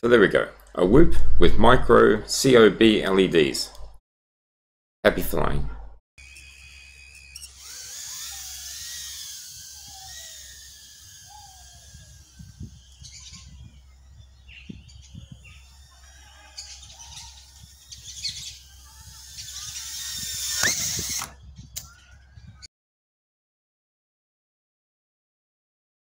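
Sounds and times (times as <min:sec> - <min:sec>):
drone motors whining: 0:06.2 - 0:22.6
birds chirping: 0:06.2 - 0:22.7.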